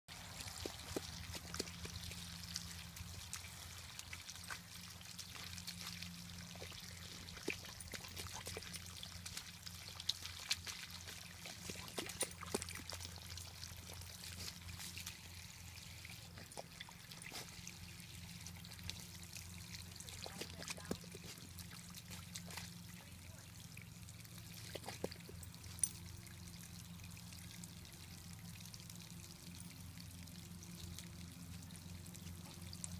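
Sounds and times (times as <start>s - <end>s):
water trickling from hose: 0.1s - 32.9s
dog pawing in muddy puddle: 0.2s - 15.3s, 19.9s - 23.0s, 24.6s - 26.0s.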